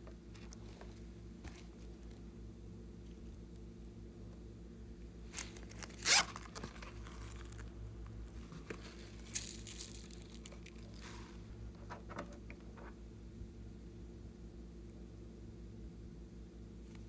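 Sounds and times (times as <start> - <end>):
zipper pulled: 5.3 - 7.7.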